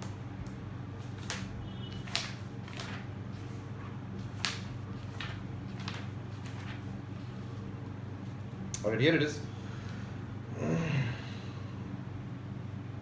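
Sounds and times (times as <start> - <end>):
steady low hum: 0.0 - 13.0
book pages flipping: 1.0 - 7.6.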